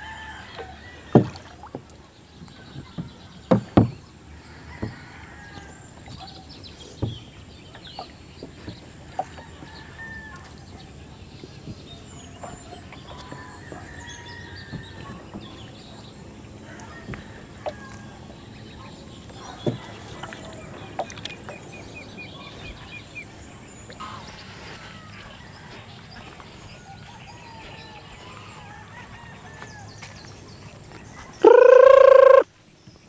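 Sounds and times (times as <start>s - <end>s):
wood knocking on boat: 1.0s - 10.6s, 11.4s - 21.6s
chickens clucking: 31.4s - 32.4s
rooster crowing: 31.4s - 32.4s.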